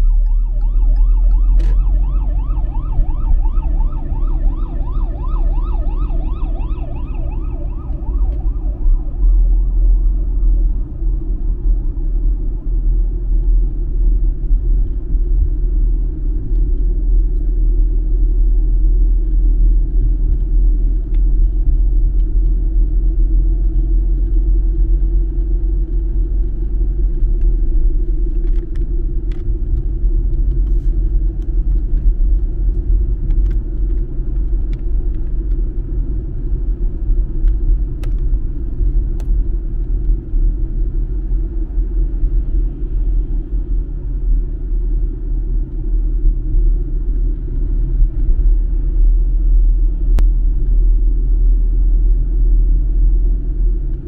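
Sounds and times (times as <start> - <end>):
car interior road noise: 0.0 - 54.0.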